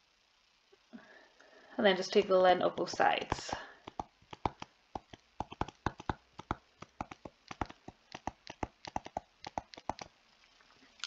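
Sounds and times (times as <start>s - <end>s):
stylus tapping on tablet screen: 2.2s - 10.1s.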